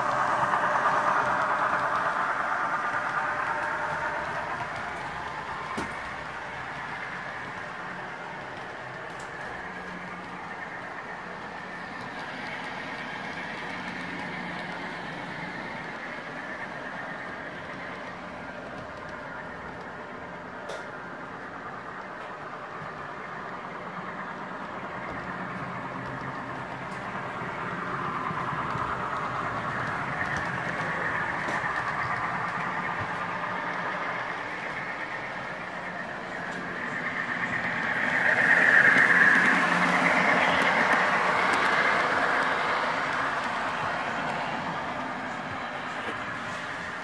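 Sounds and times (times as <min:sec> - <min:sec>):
model locomotive engine sound: 0:00.0 - 0:47.0.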